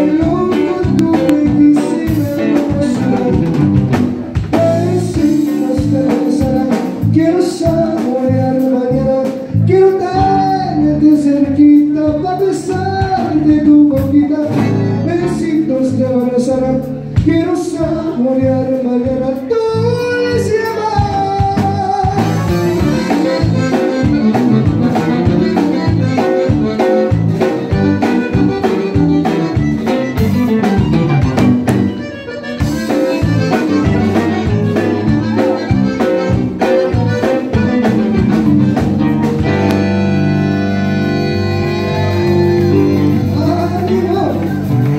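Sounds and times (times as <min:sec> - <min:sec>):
live band music: 0:00.0 - 0:44.9
button accordion: 0:21.1 - 0:44.9.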